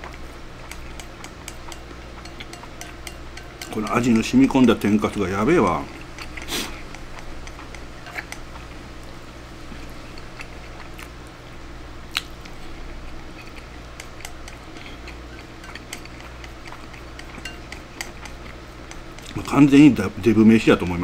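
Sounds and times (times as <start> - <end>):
chopsticks clicking on ceramic bowl: 0.0 - 5.1, 13.5 - 19.4
steady low hum: 0.0 - 21.0.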